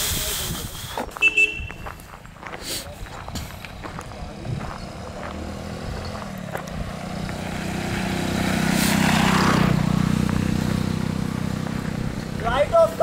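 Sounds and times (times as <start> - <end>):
tyres on gravel: 0.1 - 13.0
motorcycle engine running: 3.1 - 13.0.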